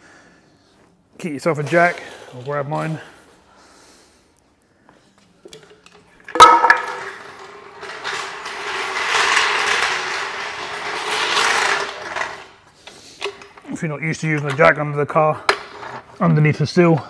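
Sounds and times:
car jack metal clang: 6.3 - 7.4
metallic rattling and scraping: 6.3 - 12.6.

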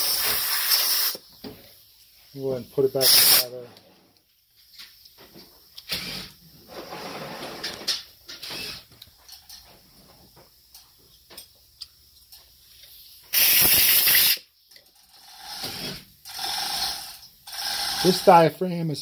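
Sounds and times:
pressurized spray hiss: 0.0 - 1.4, 2.4 - 3.6, 13.1 - 14.5.

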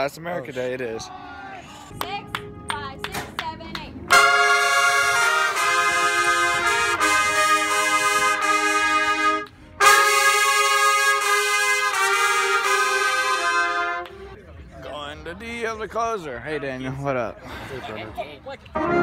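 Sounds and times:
sharp claps: 1.9 - 3.9
trumpets playing held notes: 4.1 - 14.4, 18.8 - 19.0.

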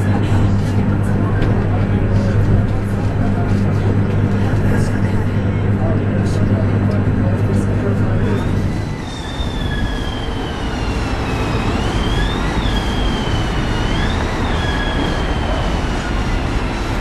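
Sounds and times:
tram rolling rumble: 0.0 - 17.0
tram wheels squealing: 8.2 - 17.0.

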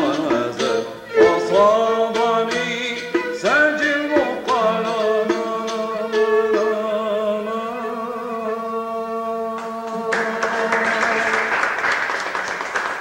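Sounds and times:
audience applause: 10.1 - 13.0.

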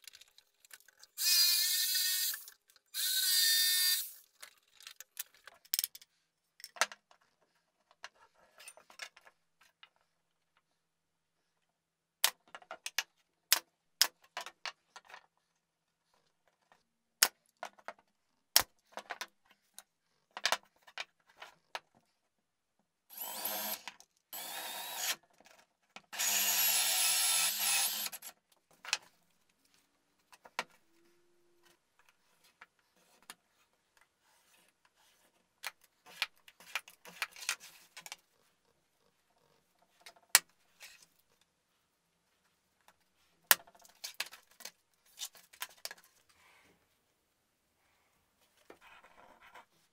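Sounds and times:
pieces being handled: 0.0 - 1.2, 4.2 - 10.0
drill with hole saw cutting plywood: 1.2 - 4.2, 23.1 - 25.2, 26.1 - 28.3.

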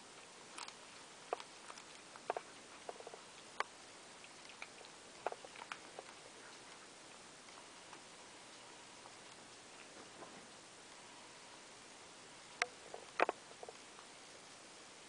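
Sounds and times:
cat crunching dry kibble: 0.2 - 8.1.

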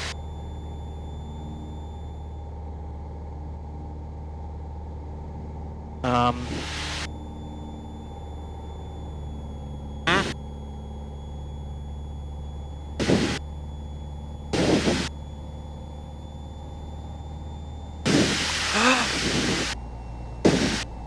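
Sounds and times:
aircraft engine running: 0.0 - 21.0
short loud noise bursts: 18.1 - 19.8.

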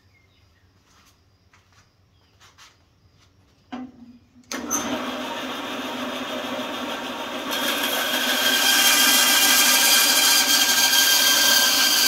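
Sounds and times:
bandsaw low hum: 3.7 - 12.0
bandsaw motor and blade running: 4.5 - 12.0.

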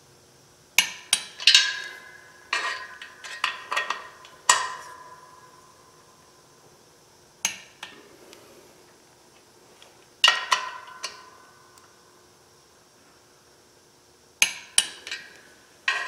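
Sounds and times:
wrench clinking on metal bolts: 0.8 - 5.6, 10.2 - 11.4, 14.4 - 16.0.

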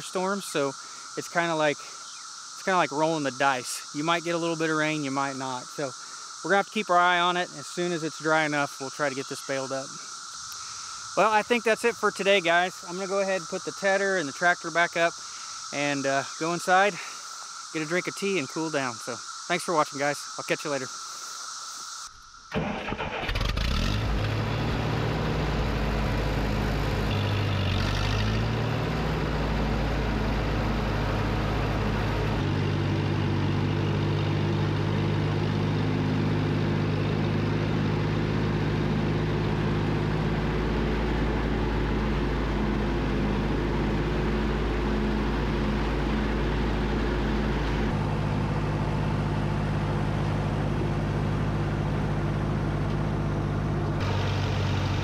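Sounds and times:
tractor engine running: 22.5 - 55.0.

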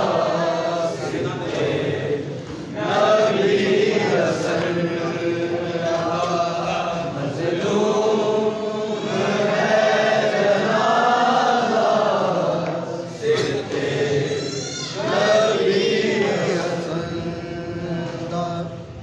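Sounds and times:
crowd of men chanting: 0.0 - 14.3, 15.0 - 18.8.

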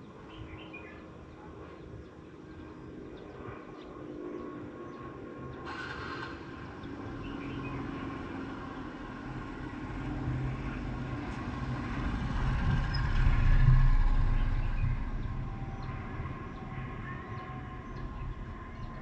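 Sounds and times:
passing vehicle engine and road rumble: 5.6 - 19.0.

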